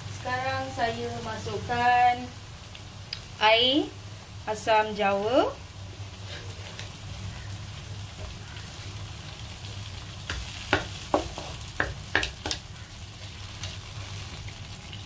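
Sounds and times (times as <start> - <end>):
vegetables sizzling in a pan: 0.0 - 15.0
spatula scraping and knocking pan: 10.3 - 12.6.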